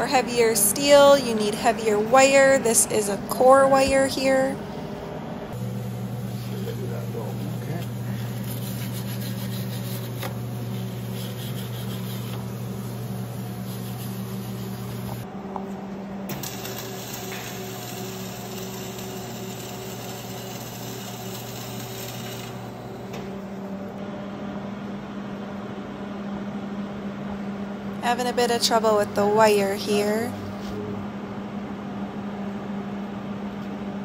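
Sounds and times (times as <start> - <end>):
welder electric hum: 5.4 - 24.1
welding arc crackling: 16.3 - 22.9.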